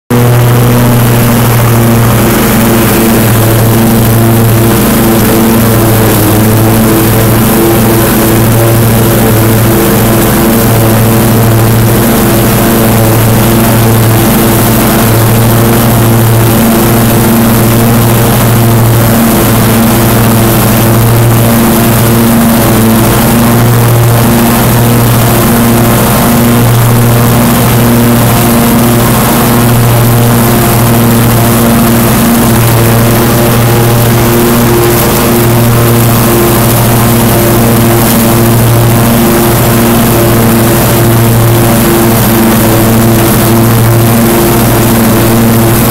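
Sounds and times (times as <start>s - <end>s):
riding mower engine droning: 0.0s - 45.9s
mower blades cutting grass: 0.1s - 45.9s.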